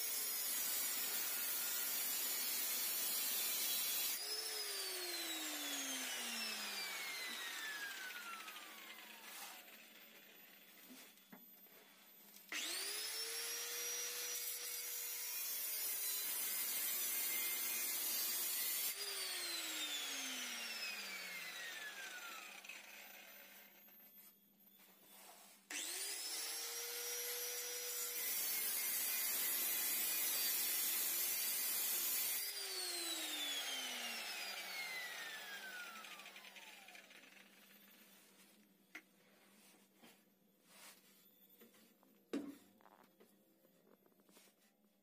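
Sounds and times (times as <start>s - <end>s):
angle grinder grinding metal: 0.1s - 10.3s.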